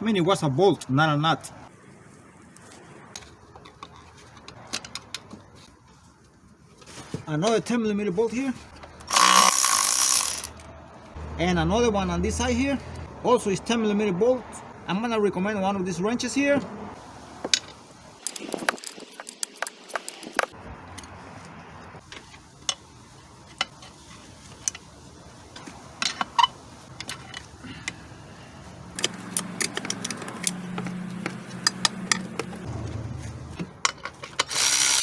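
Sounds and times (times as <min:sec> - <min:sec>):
rapid ratchet clicking: 0:09.1 - 0:10.6, 0:34.4 - 0:35.0.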